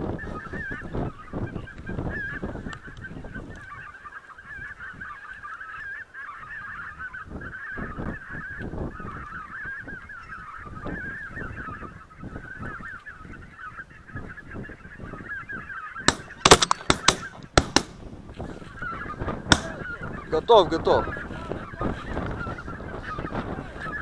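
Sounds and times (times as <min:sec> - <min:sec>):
geese honking: 0:03.7 - 0:24.0
shotgun shots: 0:16.1 - 0:18.1, 0:19.5 - 0:19.8.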